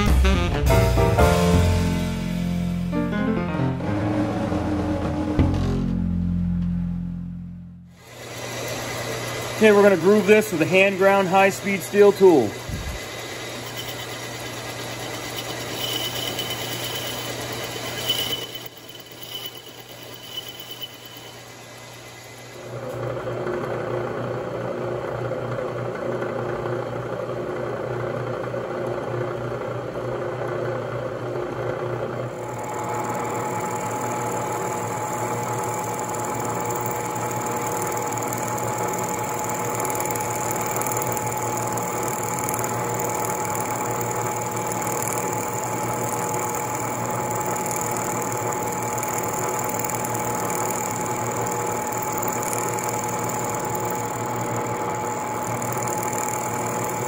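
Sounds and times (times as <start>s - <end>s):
milling machine whine: 7.9s - 26.4s, 32.2s - 57.0s.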